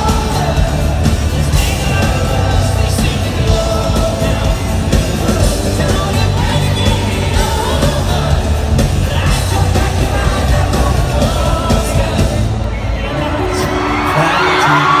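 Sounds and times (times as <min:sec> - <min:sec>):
heavy low beat: 0:00.0 - 0:12.6
keyboards: 0:00.0 - 0:15.0
person singing: 0:00.0 - 0:15.0.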